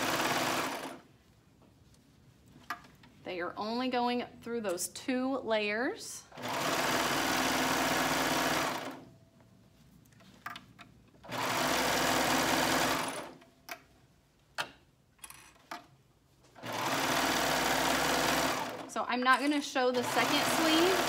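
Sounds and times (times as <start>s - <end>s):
serger sewing machine running: 0.0s - 1.0s, 6.3s - 9.0s, 11.3s - 13.4s, 16.6s - 18.9s, 19.9s - 21.0s.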